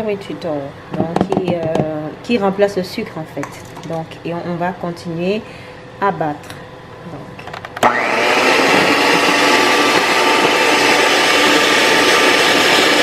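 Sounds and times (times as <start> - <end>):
electric hand mixer running: 7.8 - 13.0.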